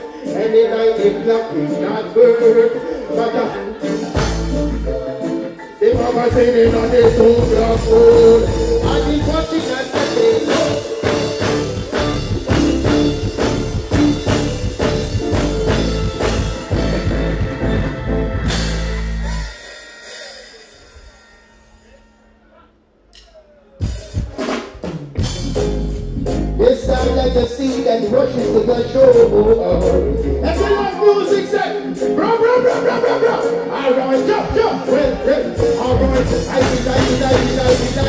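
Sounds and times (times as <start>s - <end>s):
man singing into a microphone: 0.0s - 11.8s, 26.6s - 38.0s
reggae band playing: 0.0s - 38.0s
bass line: 4.0s - 5.2s, 5.9s - 19.6s, 24.9s - 31.0s, 34.4s - 38.0s.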